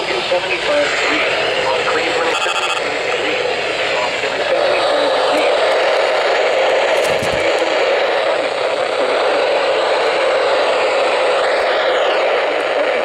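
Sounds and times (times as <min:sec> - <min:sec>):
radio static hiss: 0:00.0 - 0:13.0.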